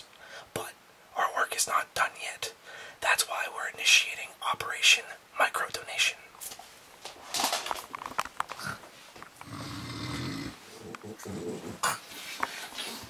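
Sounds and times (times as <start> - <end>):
person snoring: 9.4 - 12.0.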